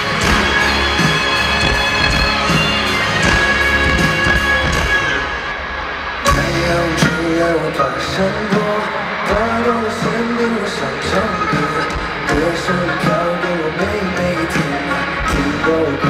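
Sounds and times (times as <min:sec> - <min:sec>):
live band playing: 0:00.0 - 0:16.0
sharp drum hit: 0:00.2 - 0:05.5
man singing: 0:06.3 - 0:16.0.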